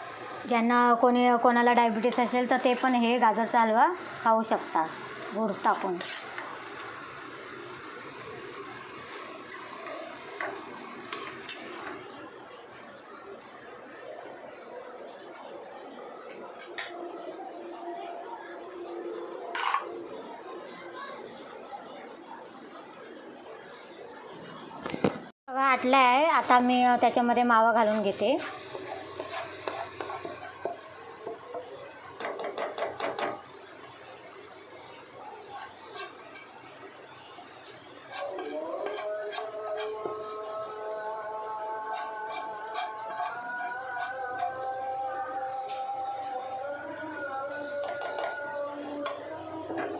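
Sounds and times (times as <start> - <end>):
carrots sizzling in a pan: 1.9 - 12.1, 26.4 - 40.8, 41.4 - 45.7
spatula scraping and knocking in a pan: 5.7 - 6.9, 27.9 - 33.4, 35.6 - 36.6, 38.1 - 40.4, 41.9 - 44.8, 47.8 - 48.4.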